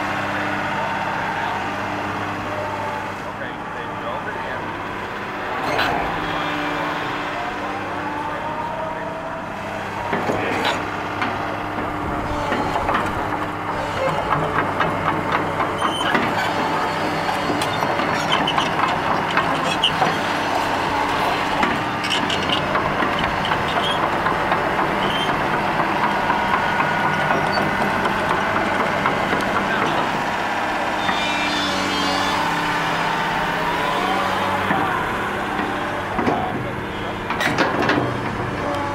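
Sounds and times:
excavator diesel engine running: 0.0s - 38.9s.

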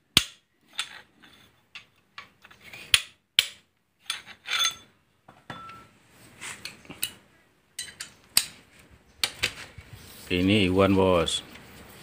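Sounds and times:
metal tools clinking on metal: 4.0s - 4.9s, 5.5s - 5.9s, 7.8s - 8.2s.

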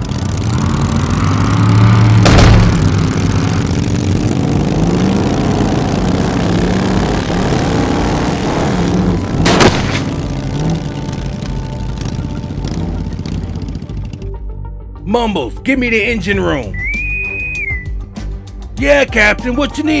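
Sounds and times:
vehicle engines revving: 0.0s - 14.4s
sharp bang: 2.2s - 3.2s.

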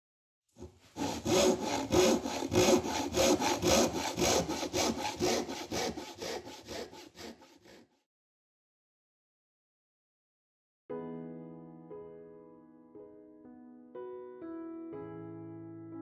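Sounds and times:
handsaw cutting wood: 0.6s - 8.0s.

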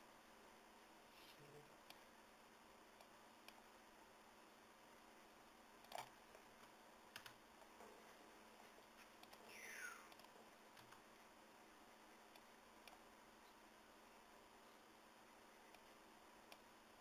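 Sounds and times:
faint room hiss: 0.0s - 17.0s
computer key and mouse clicks: 5.8s - 6.2s, 7.1s - 7.4s.

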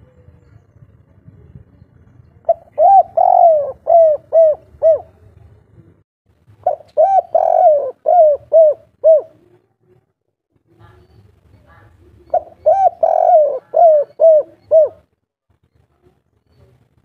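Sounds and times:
dove cooing: 2.5s - 5.2s, 6.6s - 9.6s, 12.2s - 15.1s.

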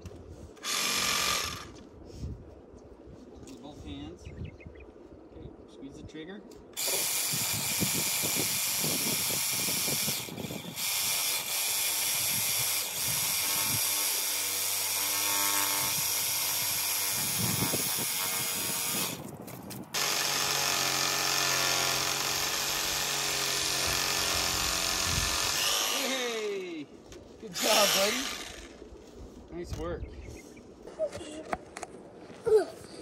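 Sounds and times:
power saw cutting wood: 0.6s - 1.8s, 6.8s - 19.2s, 20.0s - 26.8s, 27.5s - 28.8s.

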